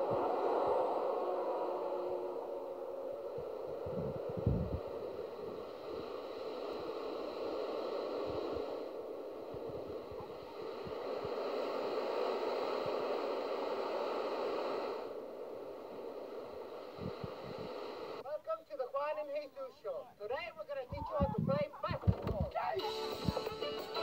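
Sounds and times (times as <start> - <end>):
wind buffeting microphone: 0.0 - 5.7, 8.2 - 11.4, 20.9 - 22.5.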